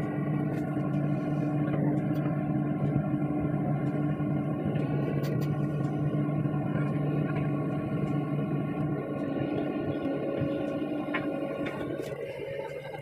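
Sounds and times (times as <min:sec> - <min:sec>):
excavator engine hum: 0:00.0 - 0:13.0
hydraulic pump whine: 0:00.0 - 0:13.0.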